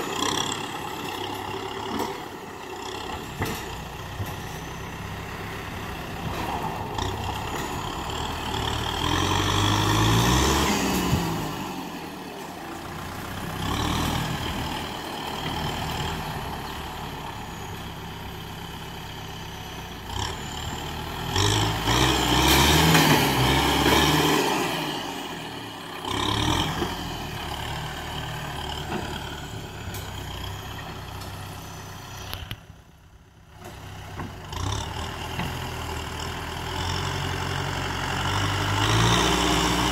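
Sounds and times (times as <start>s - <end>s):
tractor diesel engine revving: 0.0s - 39.9s.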